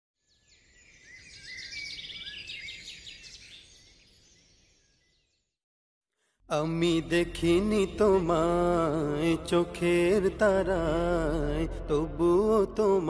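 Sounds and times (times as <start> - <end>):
small birds chirping and trilling: 0.2 - 5.6.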